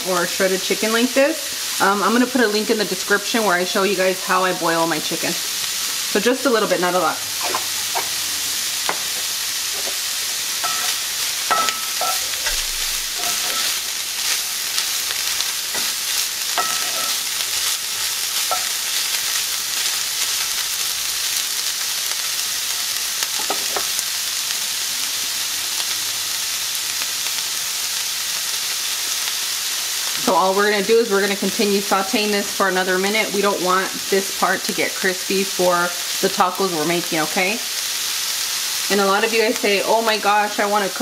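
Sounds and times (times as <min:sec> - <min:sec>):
food sizzling in oil: 0:00.0 - 0:41.0
wooden spoon scraping a pan: 0:07.4 - 0:08.2, 0:08.9 - 0:17.8, 0:18.4 - 0:18.8.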